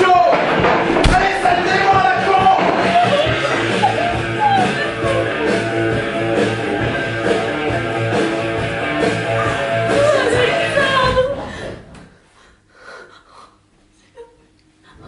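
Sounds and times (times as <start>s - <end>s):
rock music with guitar: 0.3s - 11.0s.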